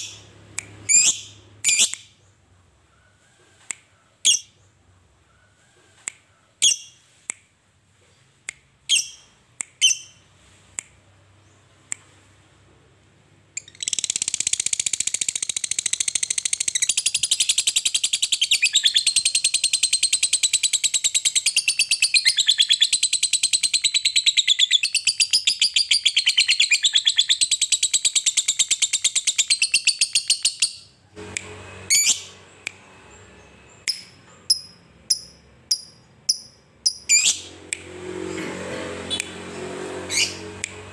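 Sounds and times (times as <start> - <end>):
bird rapid chattering trill: 33.9 - 37.5.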